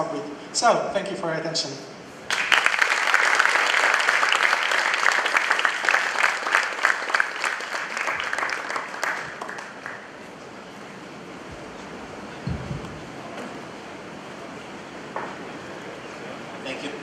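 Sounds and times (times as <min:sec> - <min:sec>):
audience applauding: 0:02.3 - 0:10.4.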